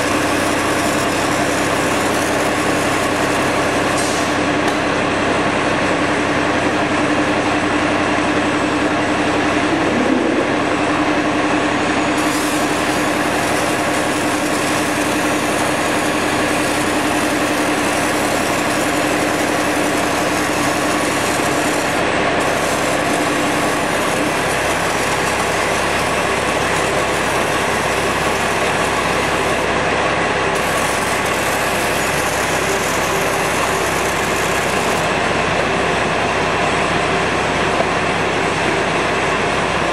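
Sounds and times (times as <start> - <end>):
industrial machinery noise: 0.0 - 39.9
machine hum: 0.0 - 39.9.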